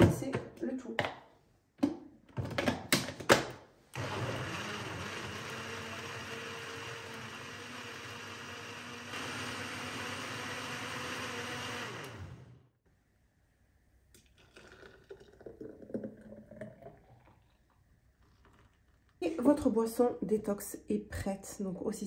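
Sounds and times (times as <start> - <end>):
blender motor running: 4.0 - 12.8.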